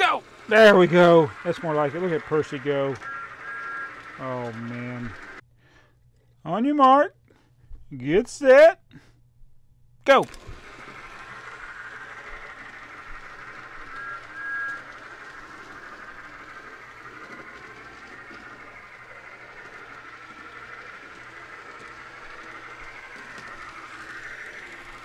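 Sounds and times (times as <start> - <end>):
model train motors whirring: 0.0 - 5.4, 10.1 - 25.0
short high tones: 0.0 - 5.4, 10.1 - 17.2.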